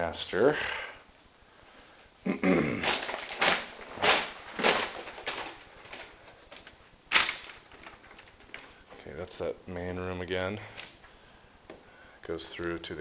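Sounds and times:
footsteps walking: 2.9s - 9.4s.

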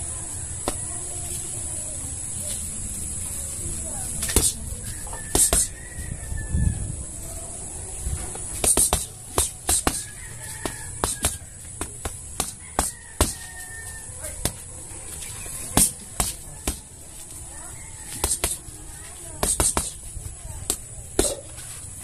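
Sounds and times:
boxing gloves smacking punching bag: 8.3s - 13.5s, 15.7s - 16.9s, 18.1s - 18.6s, 19.4s - 20.0s, 20.7s - 21.5s.

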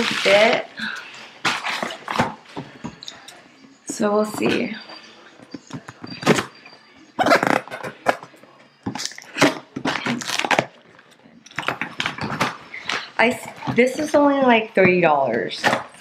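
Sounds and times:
packing tape ripping: 9.0s - 10.8s.

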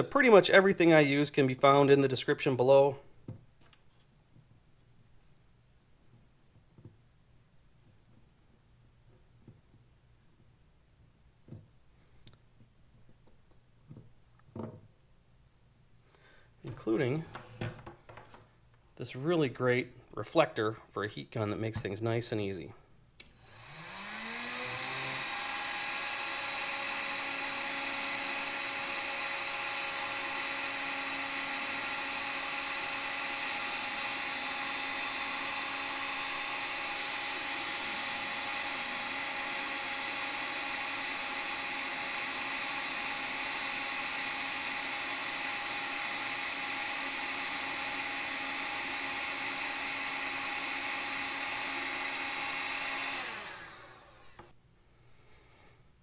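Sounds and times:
heat gun fan whine: 23.2s - 54.6s.

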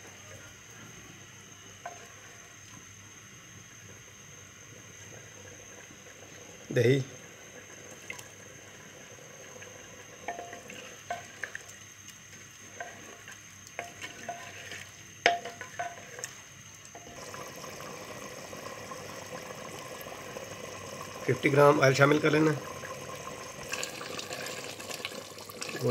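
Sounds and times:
meat sizzling: 0.6s - 25.9s
wooden spoon stirring: 1.8s - 2.4s, 9.4s - 17.4s
spoon knocking clay pot: 10.2s - 11.3s, 15.2s - 16.2s.

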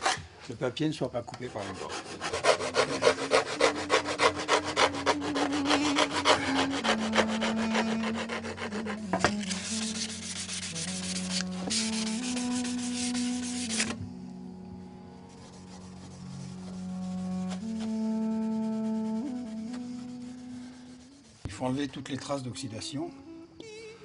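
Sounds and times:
file rasping on metal: 1.4s - 14.0s.

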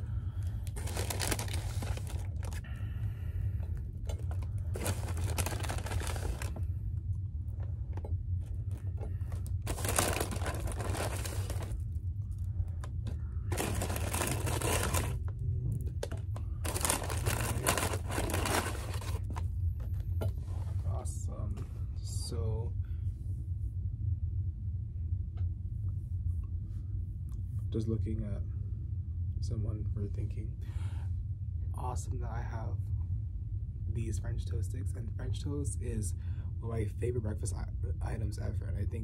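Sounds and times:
steady low hum: 0.0s - 39.0s
paper bag crinkling: 0.6s - 2.7s, 4.3s - 6.6s, 9.2s - 11.8s, 13.5s - 15.2s, 16.6s - 19.4s.

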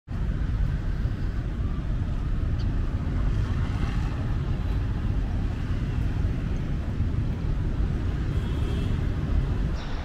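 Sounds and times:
street traffic: 0.1s - 10.0s
wind rumbling on microphone: 0.1s - 10.0s
motorbikes passing: 2.0s - 10.0s.

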